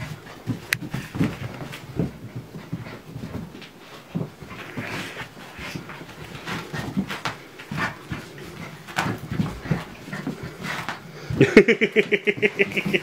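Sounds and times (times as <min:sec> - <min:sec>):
animals scuffling: 0:00.0 - 0:13.0
animal panting and grunting: 0:04.5 - 0:11.4.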